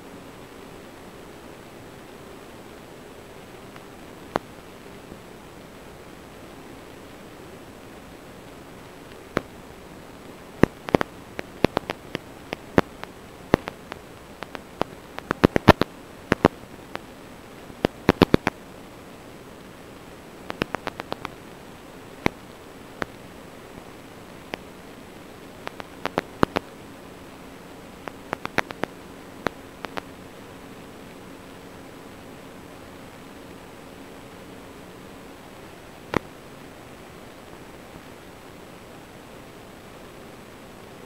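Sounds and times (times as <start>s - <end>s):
radio static hiss: 0.0s - 41.0s
sharp clicks and crackles: 8.8s - 18.6s, 20.4s - 23.2s, 23.8s - 26.8s, 27.9s - 30.2s, 36.1s - 36.3s.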